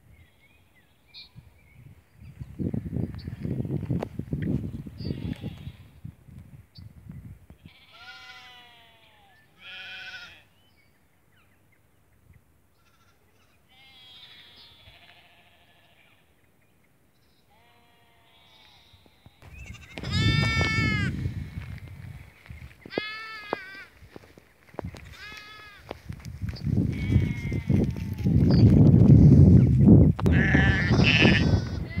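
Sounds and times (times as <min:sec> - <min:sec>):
sheep bleating: 0:07.7 - 0:10.5, 0:12.8 - 0:16.2, 0:17.5 - 0:21.2, 0:22.9 - 0:24.0, 0:25.1 - 0:26.0, 0:26.9 - 0:28.3, 0:30.3 - 0:32.0.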